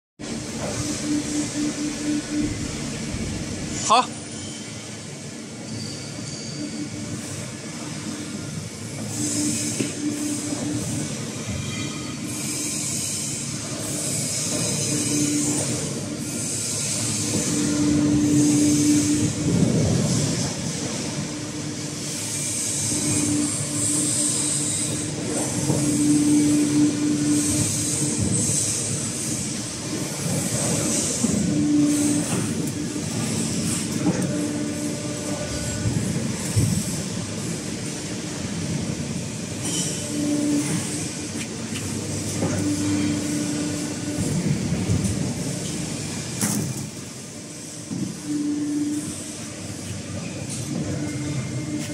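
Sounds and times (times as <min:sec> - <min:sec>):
hydraulic press mechanical rumble: 0:00.2 - 0:03.8
steady machine whine: 0:00.2 - 0:51.9.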